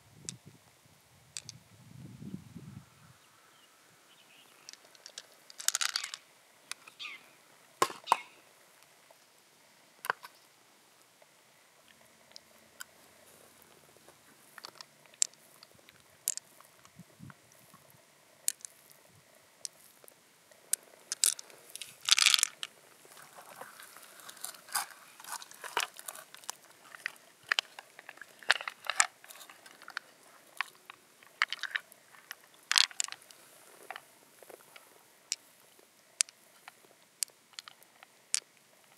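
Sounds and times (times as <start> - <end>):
sharp clicks of pearls on shell: 1.4 - 1.6, 4.6 - 7.2, 14.6 - 16.7, 18.4 - 18.9, 20.7 - 22.7.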